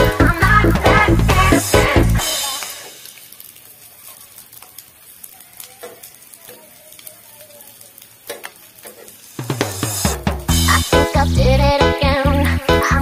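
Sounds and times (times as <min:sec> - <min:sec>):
background music: 0:00.0 - 0:02.6, 0:09.6 - 0:13.0
food sizzling on grill pan: 0:00.0 - 0:13.0
metal tongs clicking on pan: 0:05.5 - 0:07.2, 0:08.0 - 0:09.2.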